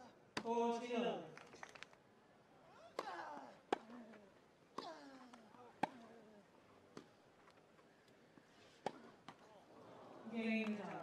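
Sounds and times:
tennis racket striking ball: 0:05.8 - 0:06.1.

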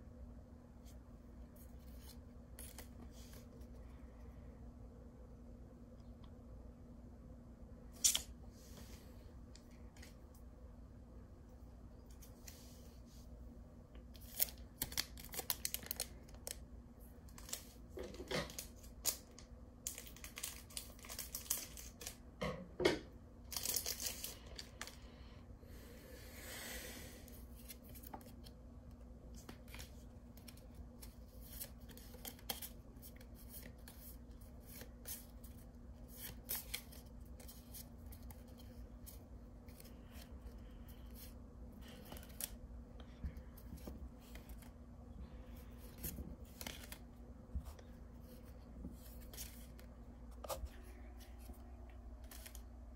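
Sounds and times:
cards rustling and crinkling: 0:01.4 - 0:03.8, 0:14.0 - 0:22.2, 0:23.5 - 0:25.1, 0:27.3 - 0:52.9.

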